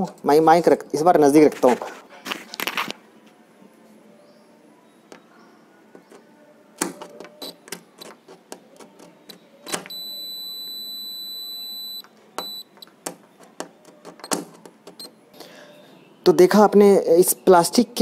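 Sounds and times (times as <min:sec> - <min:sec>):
multimeter beep: 0:09.9 - 0:12.8.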